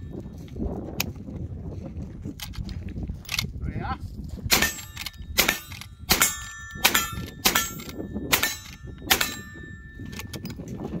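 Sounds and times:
rifle shots: 4.5s - 9.7s
steel target clanging: 4.5s - 10.4s.

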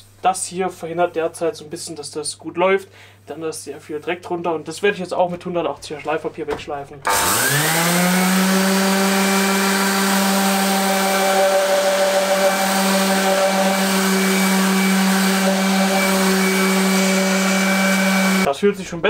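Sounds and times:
orbital sander on metal: 7.1s - 18.5s.

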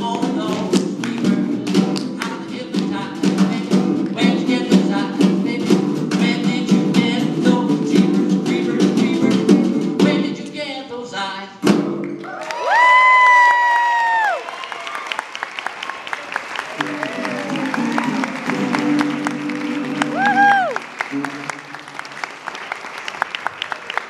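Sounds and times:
snare drum: 0.0s - 10.4s
guitar: 0.0s - 10.6s, 16.8s - 22.0s.

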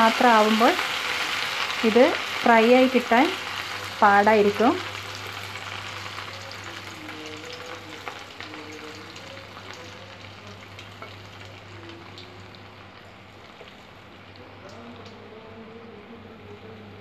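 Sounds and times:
batter sizzling in hot oil: 0.0s - 15.2s.

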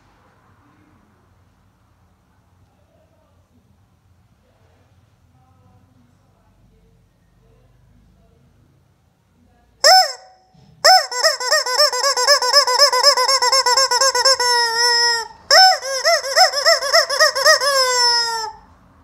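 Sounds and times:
rubber chicken toy squawking: 9.8s - 18.7s.

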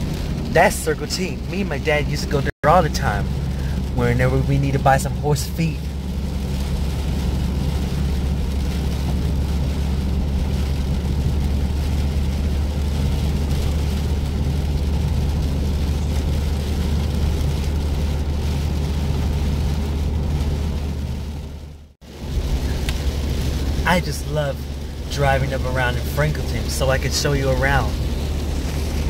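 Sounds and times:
car engine and tyre noise: 0.0s - 29.0s
rain: 0.0s - 29.0s.

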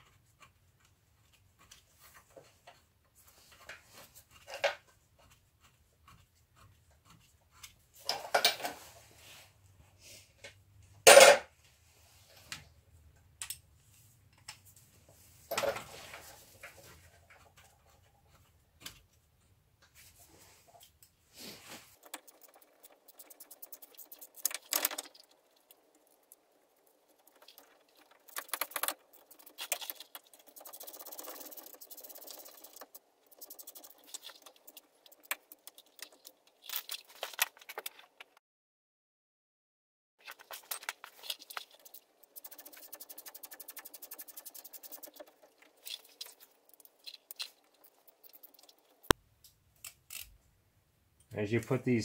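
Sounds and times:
rapid ticks: 22.0s - 37.9s, 40.3s - 49.2s.

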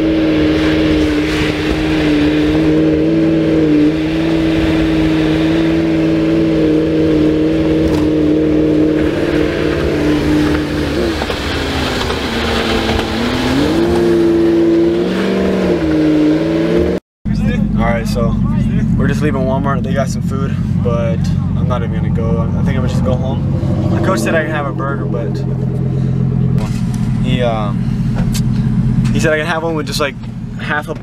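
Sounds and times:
road and wind noise: 0.0s - 31.0s
truck engine drone: 0.0s - 31.0s.

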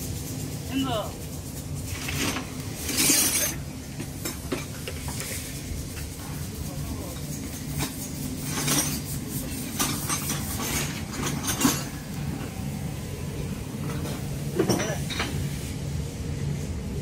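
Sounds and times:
truck engine humming: 9.3s - 17.0s.

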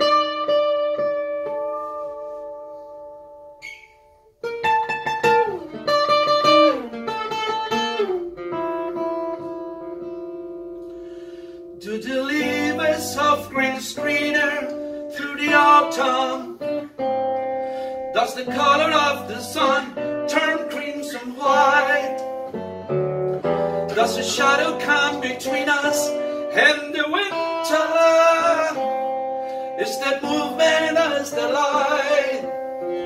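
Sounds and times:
picked acoustic guitar: 0.0s - 33.0s
man singing: 11.8s - 17.0s, 18.0s - 22.6s, 23.5s - 33.0s.

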